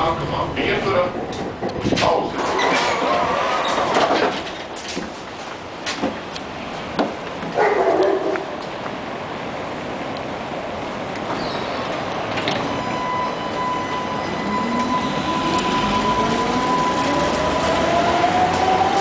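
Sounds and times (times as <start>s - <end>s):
wheels rumbling on rails: 0.0s - 19.0s
tram motor whine: 9.1s - 19.0s.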